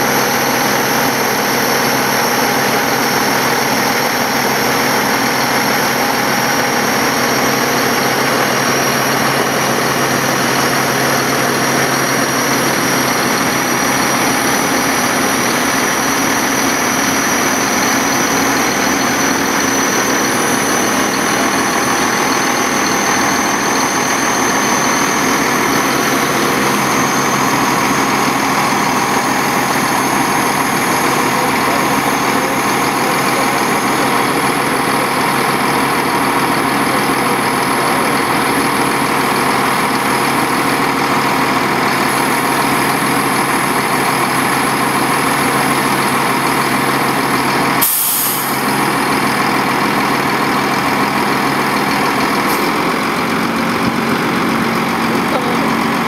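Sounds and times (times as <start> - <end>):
truck engine idling: 0.0 - 56.0.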